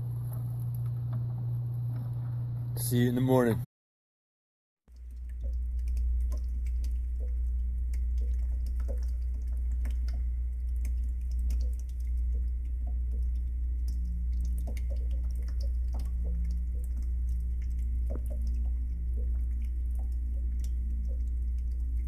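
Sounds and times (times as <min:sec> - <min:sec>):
small drips and splashes: 0:00.0 - 0:02.1, 0:04.9 - 0:22.0
water trickling into pool: 0:04.9 - 0:22.0
steady low rumble: 0:05.0 - 0:22.0.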